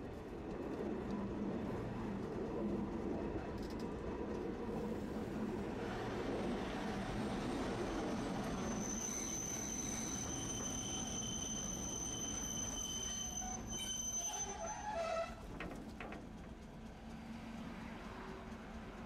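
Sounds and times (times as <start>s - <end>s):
streetcar rumbling on track: 0.0s - 19.0s
wheel squeal: 8.4s - 15.5s.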